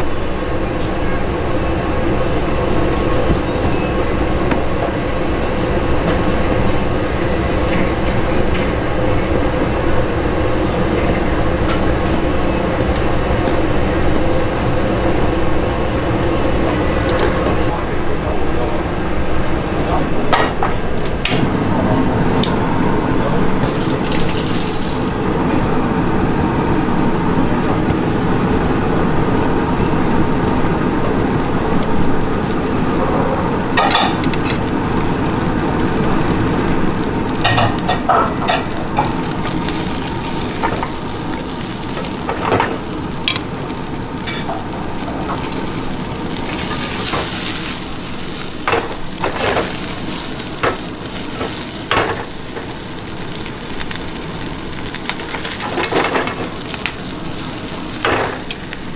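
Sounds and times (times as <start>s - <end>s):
gas burner rumble: 0.0s - 58.9s
meat sizzling in a frying pan: 23.6s - 25.1s, 28.0s - 58.9s.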